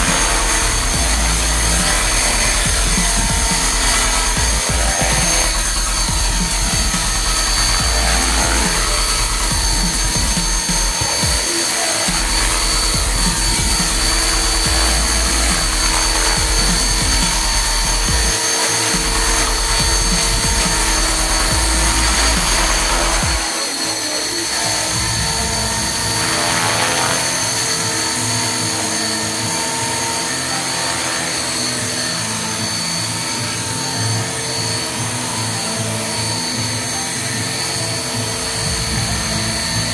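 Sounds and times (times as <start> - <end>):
rc helicopter high whine: 0.0 - 39.9.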